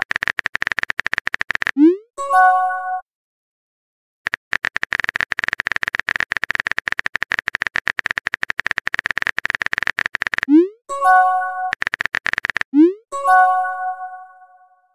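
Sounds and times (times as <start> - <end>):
synthetic keyboard clicks: 0.0 - 2.1, 4.3 - 13.5.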